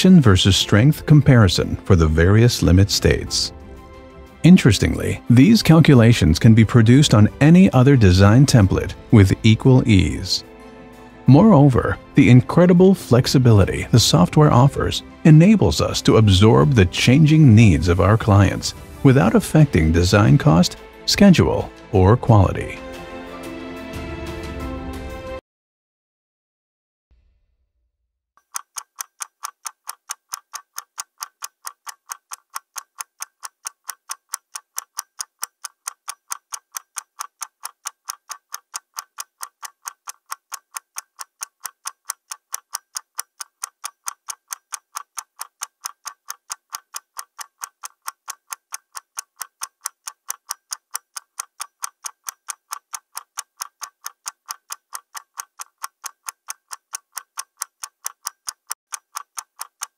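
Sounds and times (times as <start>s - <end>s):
clock ticking: 0.0s - 3.5s, 4.4s - 22.8s, 28.4s - 59.9s.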